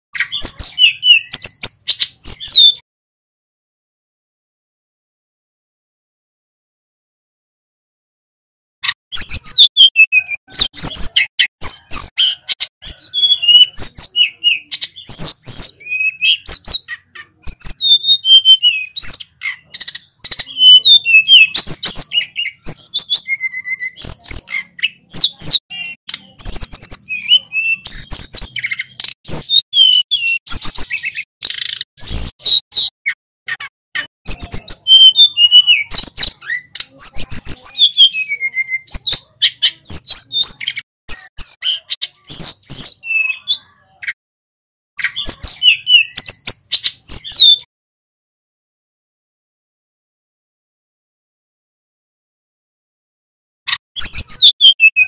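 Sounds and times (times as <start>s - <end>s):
bird singing whistled notes: 0.2s - 2.8s, 9.1s - 33.0s, 33.6s - 44.2s, 45.0s - 47.7s, 54.0s - 55.0s.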